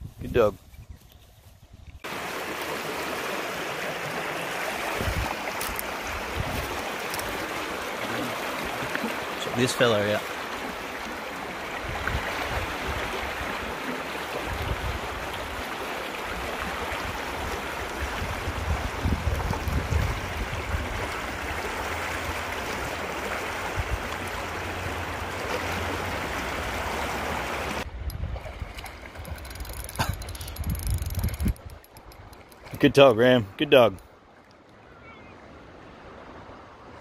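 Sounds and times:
river rushing over stones: 2.1s - 27.8s.

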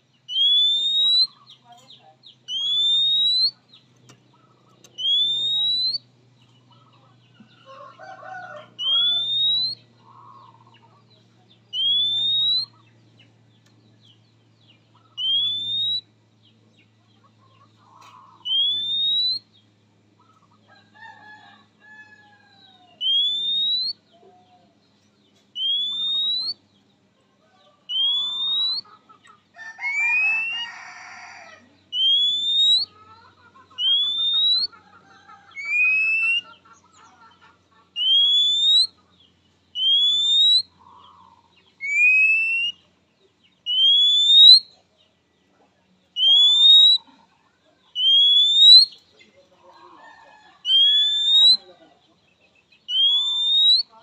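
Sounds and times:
faint bird chirps: 0.0s - 54.0s
bird whistle rising: 0.3s - 1.4s, 2.5s - 3.6s, 5.0s - 6.1s, 8.8s - 9.8s, 11.7s - 12.8s, 15.2s - 16.1s, 18.4s - 19.5s, 23.0s - 24.0s, 25.6s - 26.6s, 27.9s - 28.9s, 29.8s - 30.7s, 31.9s - 33.0s, 33.8s - 34.7s, 35.5s - 36.5s, 38.0s - 39.0s, 39.8s - 40.8s, 41.8s - 42.8s, 43.7s - 44.7s, 46.2s - 47.1s, 48.0s - 49.0s, 50.7s - 51.7s, 52.9s - 54.0s.

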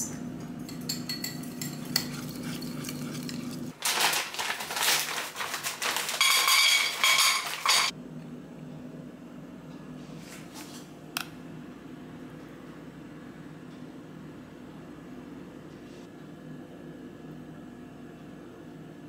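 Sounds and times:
plastic bag crinkling: 3.8s - 7.9s.

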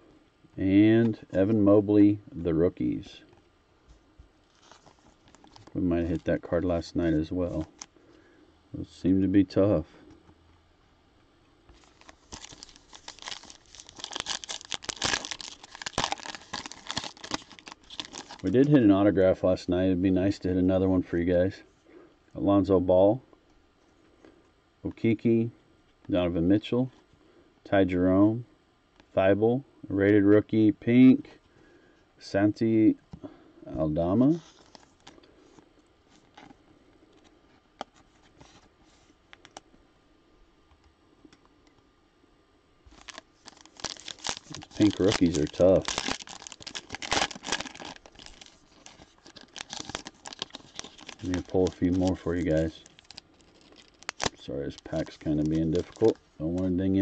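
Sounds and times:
card pack wrapper tearing: 11.8s - 18.8s, 42.9s - 56.7s.

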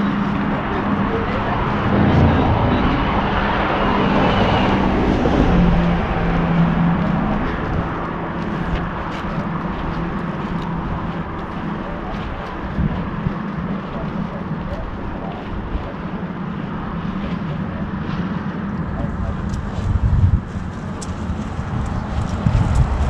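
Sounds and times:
steady rushing noise: 0.0s - 23.0s
vehicle engine droning past: 0.6s - 12.1s.

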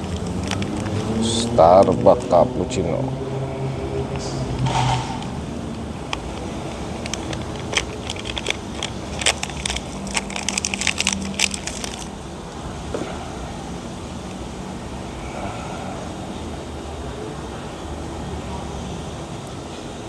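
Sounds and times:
plastic sachet crinkling: 0.0s - 2.4s, 6.1s - 12.2s.

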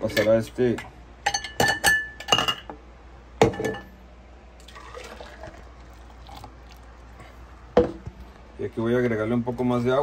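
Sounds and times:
glassware clinking: 1.2s - 2.8s, 3.4s - 4.0s.

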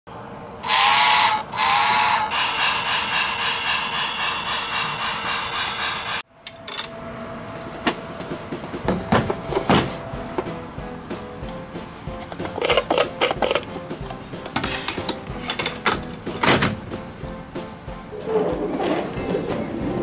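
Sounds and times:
toy electronic sound effects: 0.6s - 6.2s.

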